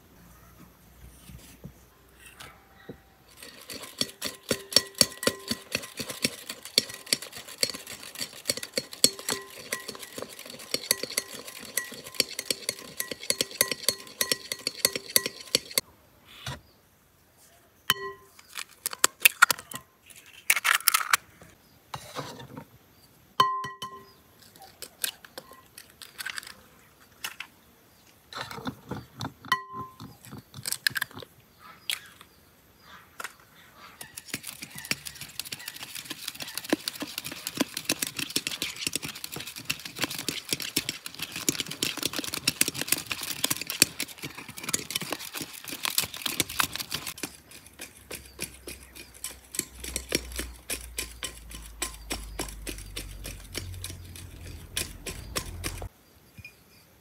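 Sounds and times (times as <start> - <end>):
clinks: 3.3 - 15.8, 17.9 - 18.4, 48.1 - 56.6
whisk clicking against glass bowl: 3.4 - 15.8, 48.1 - 55.9.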